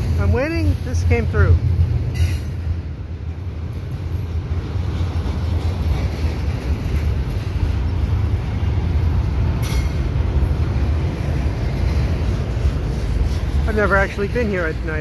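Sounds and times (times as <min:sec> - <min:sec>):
freight train rolling past: 0:00.0 - 0:15.0
steel wheels rumbling on rail: 0:00.0 - 0:15.0.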